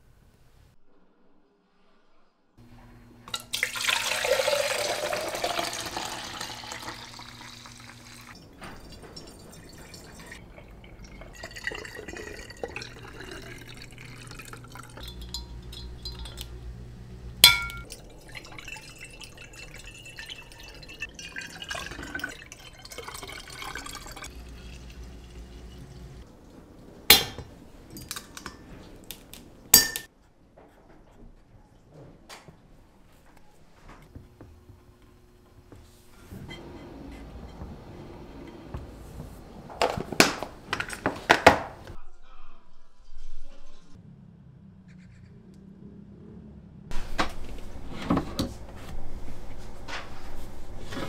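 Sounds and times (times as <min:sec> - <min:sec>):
liquid pouring into glass bottle: 0:03.4 - 0:16.4, 0:17.4 - 0:26.2
glass handling: 0:17.4 - 0:17.9, 0:29.8 - 0:30.1.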